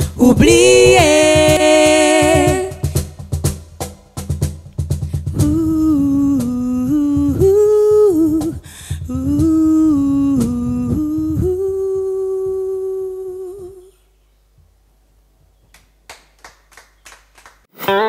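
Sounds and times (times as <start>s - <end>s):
backing beat: 0.0s - 12.0s.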